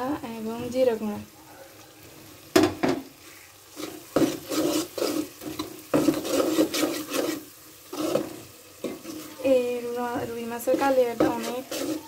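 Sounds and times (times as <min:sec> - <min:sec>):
metal spoon scraping a pot: 0:03.7 - 0:09.6, 0:10.2 - 0:12.0.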